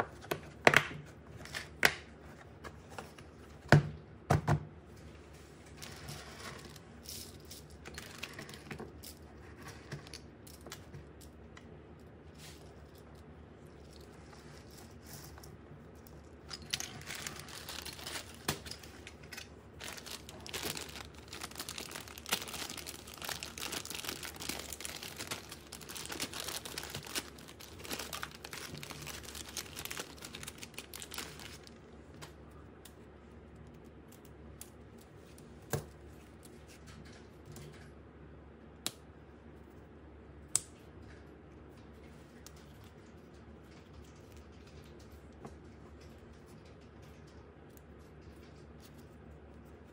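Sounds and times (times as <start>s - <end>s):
packaging crinkling and tearing: 7.9s - 8.8s, 16.4s - 31.8s.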